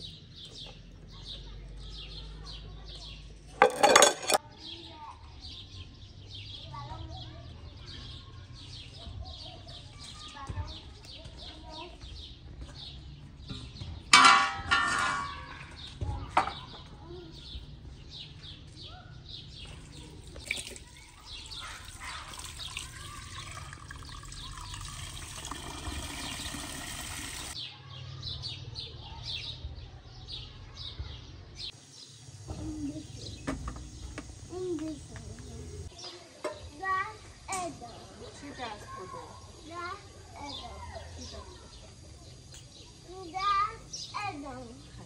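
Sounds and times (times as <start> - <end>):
small birds chirping: 0.0 - 14.2, 15.0 - 45.0
tap water running into pot: 19.7 - 27.6.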